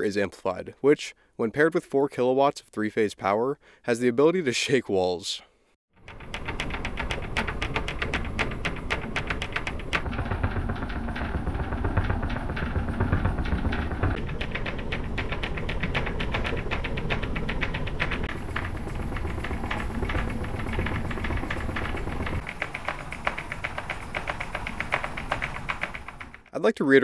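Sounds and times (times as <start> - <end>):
deep rumble: 6.0 - 26.5
fast even rattling: 6.0 - 26.6.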